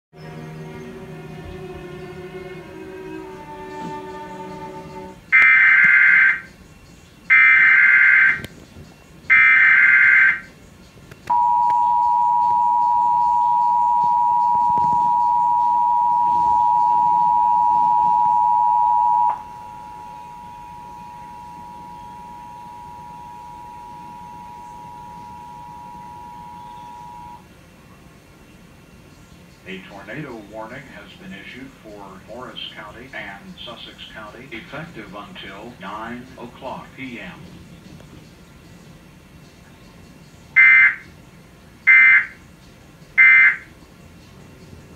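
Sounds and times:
digital data bursts: 5.4 - 6.5, 7.3 - 8.4, 9.3 - 10.5, 43.2 - 43.7
two-tone alert signal: 11.3 - 27.4, 43.2 - 43.7.

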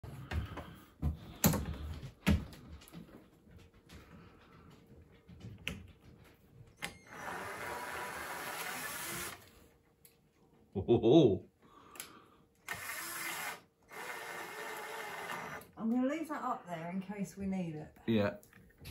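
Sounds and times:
cordless drill running: 6.8 - 9.5, 12.6 - 15.8.

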